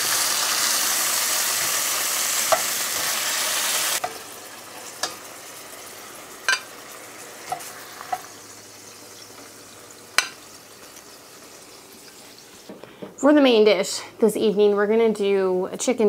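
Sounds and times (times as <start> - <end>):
chicken sizzling in a skillet: 0.0 - 12.7.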